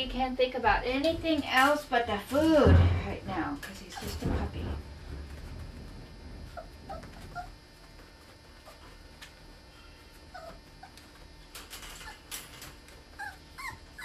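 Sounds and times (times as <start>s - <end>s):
puppy whimpering: 6.5s - 8.0s, 10.0s - 11.3s, 11.9s - 12.4s, 13.1s - 14.0s.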